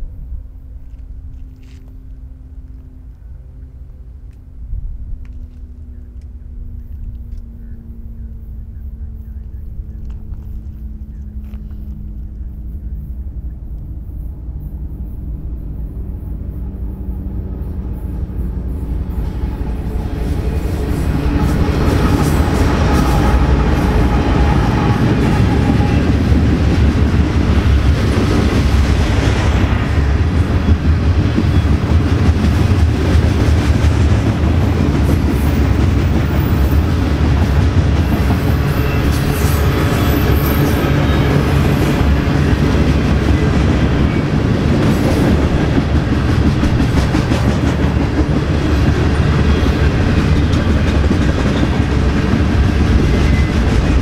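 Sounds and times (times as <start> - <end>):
train wheels rumbling on rails: 0.0 - 54.0
high wheel squeal: 10.4 - 26.3, 38.0 - 42.7, 52.7 - 54.0.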